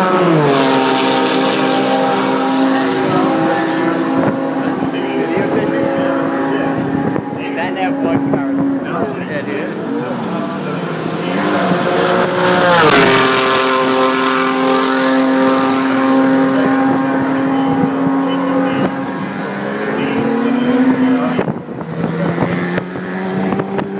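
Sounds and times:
race car engine passing: 0:00.0 - 0:23.9.

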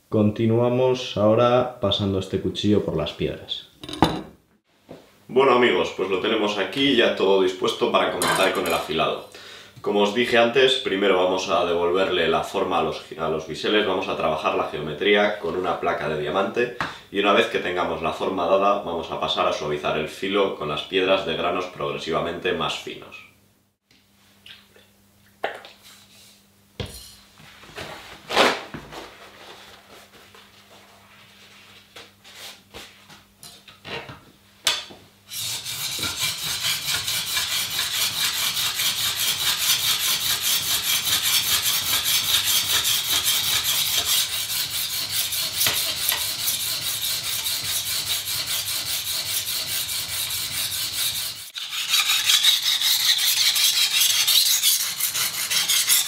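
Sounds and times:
knife scraping on sharpening plate: 0:51.5 - 0:56.0.

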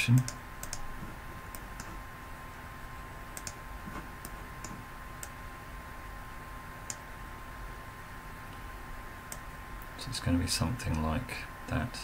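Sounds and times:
faint electrical hum: 0:00.0 - 0:12.0
computer mouse clicking: 0:00.1 - 0:00.9, 0:01.5 - 0:02.0, 0:03.3 - 0:03.6.

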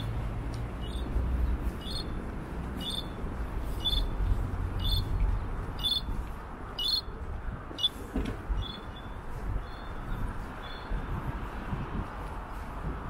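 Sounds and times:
low street rumble: 0:00.0 - 0:13.0
crossing signal beeping: 0:02.8 - 0:04.2, 0:04.8 - 0:05.1, 0:05.8 - 0:06.1, 0:06.8 - 0:07.1, 0:07.8 - 0:08.0.

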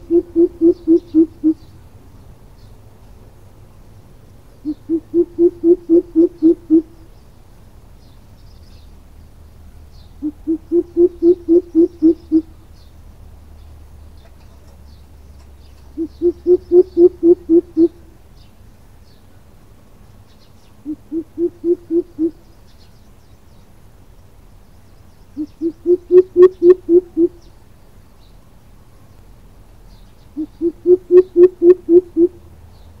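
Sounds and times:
bird deep hooting calls: 0:00.0 - 0:01.7, 0:04.6 - 0:07.0, 0:10.2 - 0:12.6, 0:15.8 - 0:18.0, 0:20.8 - 0:22.5, 0:25.4 - 0:27.5, 0:30.3 - 0:32.5.

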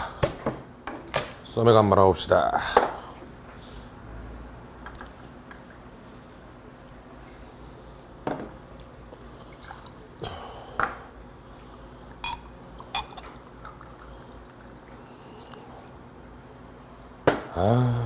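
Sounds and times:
liquid pouring into a glass: 0:09.4 - 0:10.0, 0:12.1 - 0:15.3.

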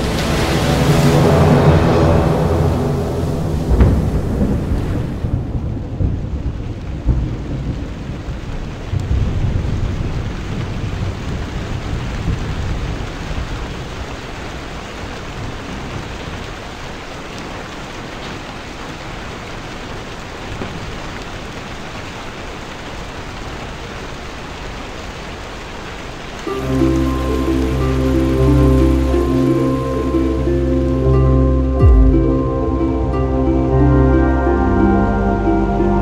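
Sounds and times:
low rumble of thunder: 0:00.0 - 0:14.2, 0:31.8 - 0:36.0
steady rain hiss: 0:00.0 - 0:36.0.

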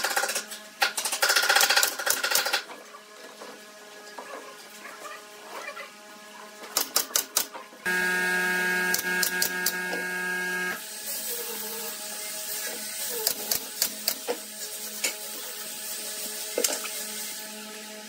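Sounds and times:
cordless drill driving a screw: 0:07.9 - 0:10.8.

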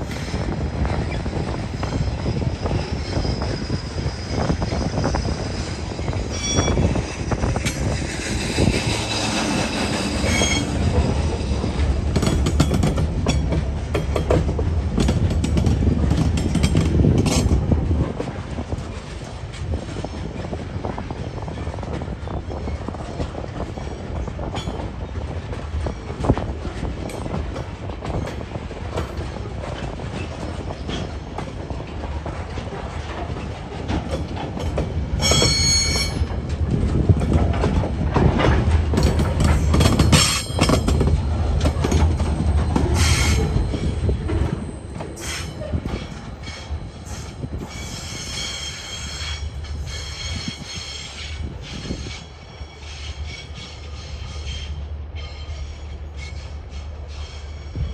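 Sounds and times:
train wagons rumbling: 0:00.0 - 0:57.9
high wheel squeal: 0:01.0 - 0:11.8, 0:35.2 - 0:36.4, 0:40.2 - 0:57.9
wheels clicking over rail joints: 0:06.0 - 0:20.6, 0:21.2 - 0:47.3.

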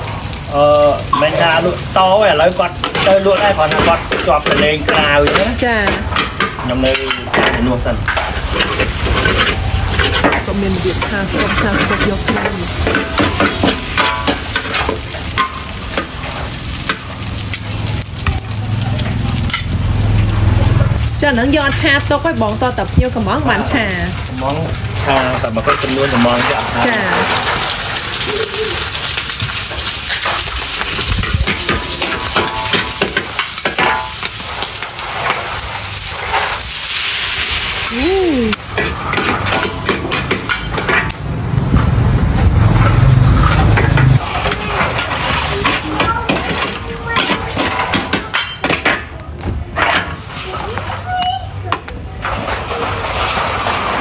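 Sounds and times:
oil sizzling: 0:00.0 - 0:54.0
utensils scraping in a wok: 0:01.2 - 0:49.0, 0:49.6 - 0:51.3, 0:52.1 - 0:54.0
low engine hum: 0:41.4 - 0:44.2.

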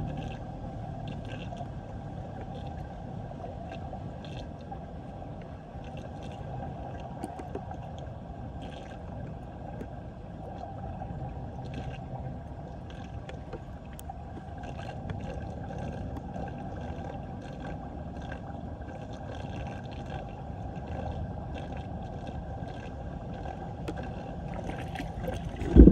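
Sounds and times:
faint splashy ticks: 0:05.8 - 0:08.0, 0:08.6 - 0:10.0, 0:12.9 - 0:18.4
water rushing down a drain: 0:05.8 - 0:25.9.

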